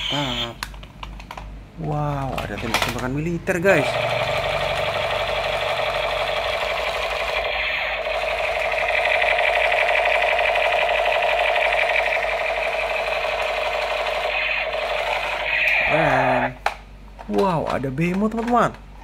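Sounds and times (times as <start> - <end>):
toy gun electronic rapid fire: 3.7 - 16.5.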